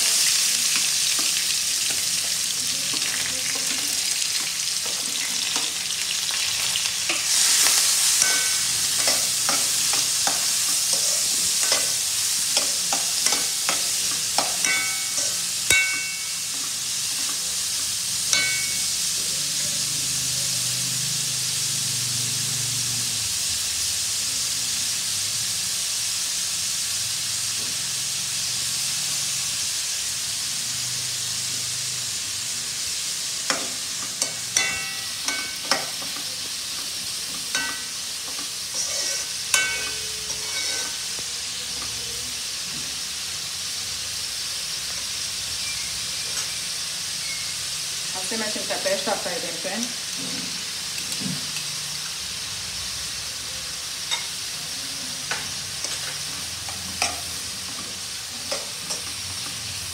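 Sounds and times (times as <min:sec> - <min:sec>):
onions sizzling in hot oil: 0:00.0 - 0:59.9
metal spoon clinking against pan: 0:08.0 - 0:17.4, 0:18.3 - 0:19.2, 0:33.5 - 0:36.5, 0:37.5 - 0:41.1.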